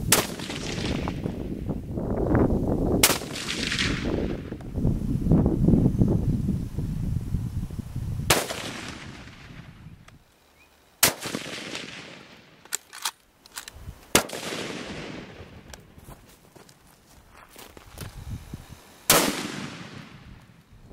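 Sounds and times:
rifle shots echoing: 0.1s - 1.2s, 3.0s - 4.5s, 8.3s - 9.7s, 11.0s - 13.1s, 14.1s - 15.7s, 19.1s - 20.3s.

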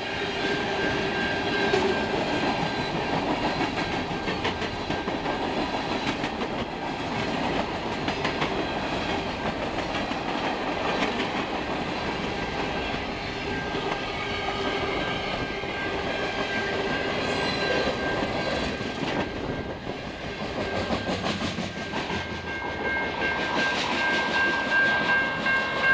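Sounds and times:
freight train rolling past: 0.0s - 25.9s
steady high warning tone: 0.1s - 5.3s.

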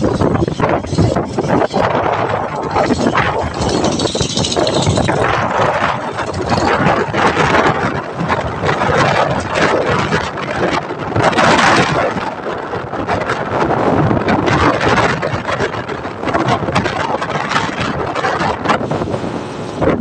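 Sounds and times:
motorcycle engine: 0.0s - 13.6s
road noise: 0.0s - 20.0s
wind buffeting microphone: 0.0s - 20.0s.

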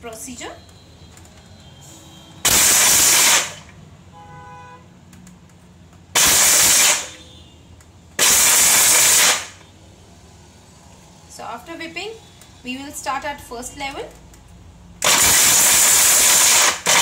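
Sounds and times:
mixer grinder motor bursts: 2.5s - 3.7s, 6.2s - 7.2s, 15.0s - 17.0s.

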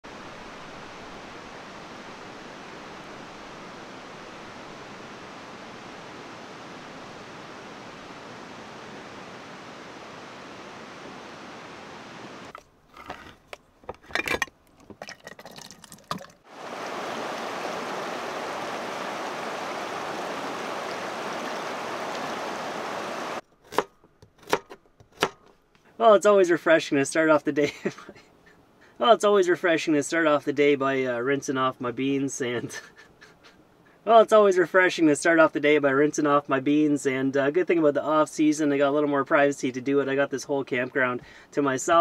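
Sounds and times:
river rushing: 0.0s - 12.5s, 16.4s - 23.4s.

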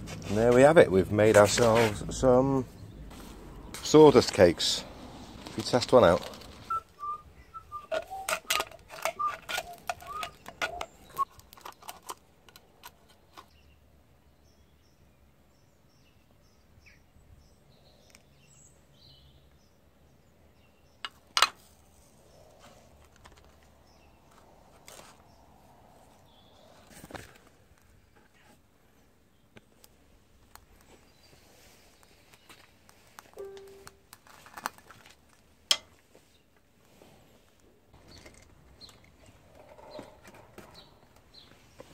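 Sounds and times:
birds chirping: 0.3s - 12.0s, 22.1s - 27.0s, 38.0s - 41.9s.

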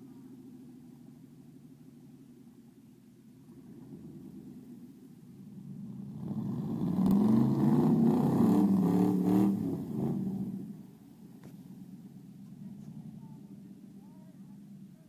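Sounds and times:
truck engine revving hard: 6.2s - 10.8s.

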